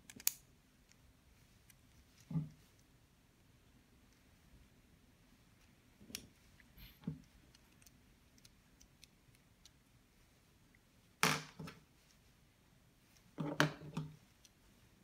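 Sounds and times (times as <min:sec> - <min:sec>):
plastic parts clicking: 0:00.0 - 0:01.0.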